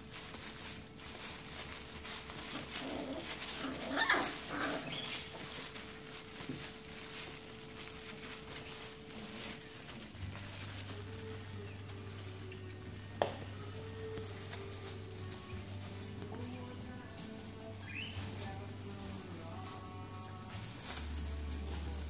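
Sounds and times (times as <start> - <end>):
puppies scuffling on a pad: 0.0 - 22.0
puppies whimpering: 2.6 - 6.0.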